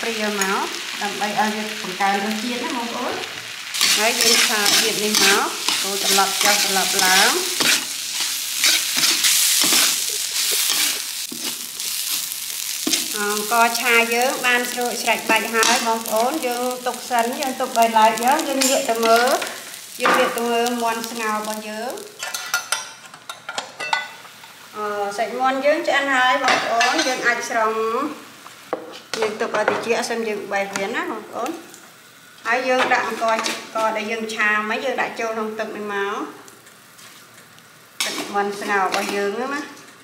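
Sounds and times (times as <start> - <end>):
rice sizzling in oil: 0.0 - 23.0, 24.1 - 40.0
metal spatula scraping wok: 3.8 - 13.0, 38.0 - 39.3.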